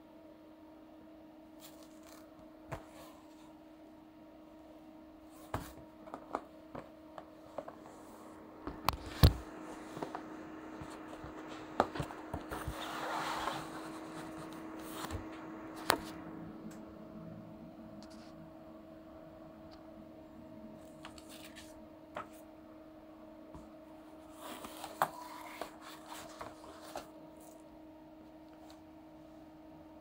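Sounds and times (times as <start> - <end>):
steady low hum: 0.0 - 30.0
scraping slide: 12.5 - 15.2.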